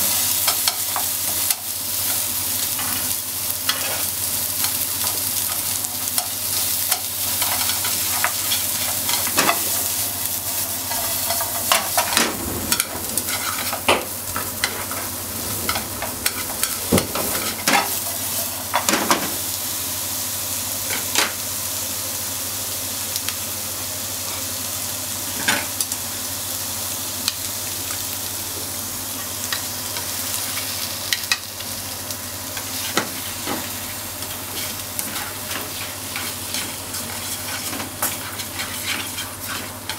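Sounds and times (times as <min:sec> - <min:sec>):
food sizzling in frying pan: 0:00.0 - 0:39.9
chopsticks clicking and scraping pan: 0:34.5 - 0:39.9.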